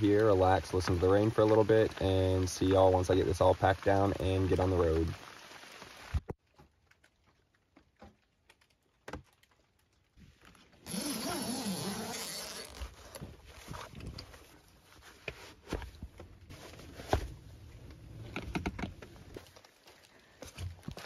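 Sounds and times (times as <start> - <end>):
tent zipper pulled open: 10.8 - 13.9.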